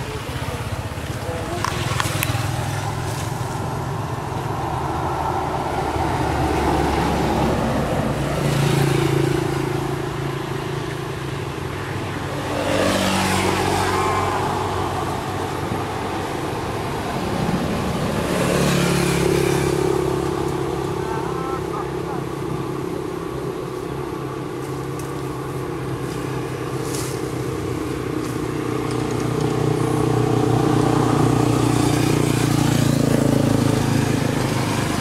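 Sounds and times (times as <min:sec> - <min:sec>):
vehicles passing on road: 0:00.0 - 0:35.0.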